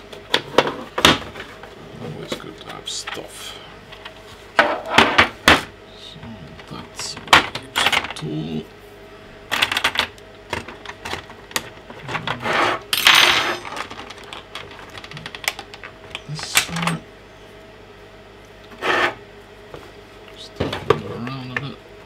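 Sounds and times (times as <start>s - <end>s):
metal bits rattling in plastic case: 13.5s - 15.7s.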